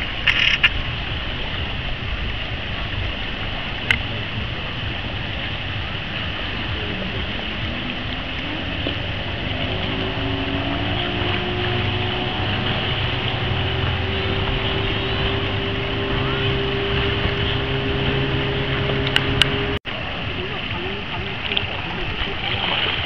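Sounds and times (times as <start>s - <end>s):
boat engine drone: 0.0s - 23.0s
low rumble: 0.0s - 23.0s
sharp click: 0.2s - 0.8s.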